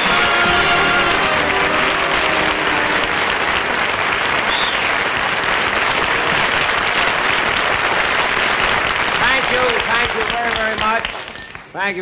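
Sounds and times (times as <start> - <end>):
band theme music: 0.0 - 4.8
studio audience applauding: 0.0 - 11.9.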